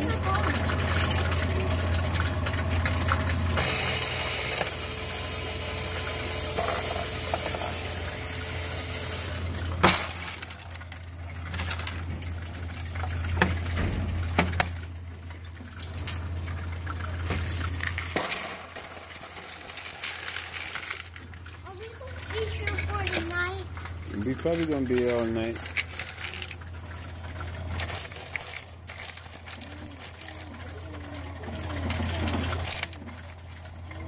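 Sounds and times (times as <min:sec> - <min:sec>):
coins rushing and rattling: 0:00.0 - 0:02.4, 0:03.0 - 0:15.0, 0:15.7 - 0:34.0
coin counting machine motor hum: 0:00.0 - 0:34.0
coins clinking: 0:00.0 - 0:34.0.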